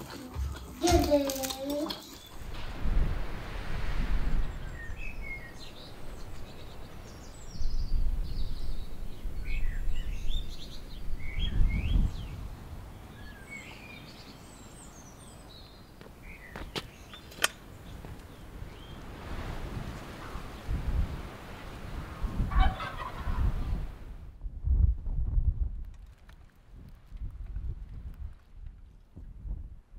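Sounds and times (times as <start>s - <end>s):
songbirds chirping: 0.0s - 2.6s, 4.4s - 23.8s
wind rumbling on microphone: 2.2s - 16.8s, 17.7s - 29.9s.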